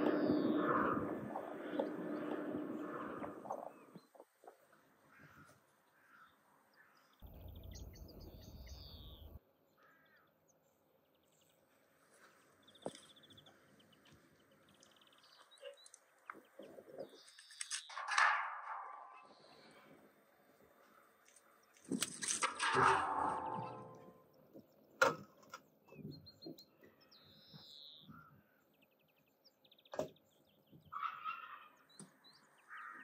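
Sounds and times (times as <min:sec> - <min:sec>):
small birds chirping: 0:00.0 - 0:18.0, 0:25.6 - 0:33.0
sticks clattering into steel barrel: 0:17.5 - 0:19.3, 0:21.9 - 0:24.2.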